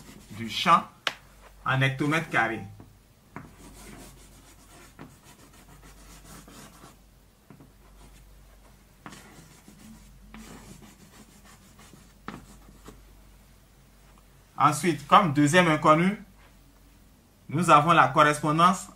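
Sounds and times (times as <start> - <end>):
chalk scratching on blackboard: 0.0 - 0.6, 3.4 - 7.0, 7.8 - 13.0
chalk tapping on board: 3.4 - 6.8.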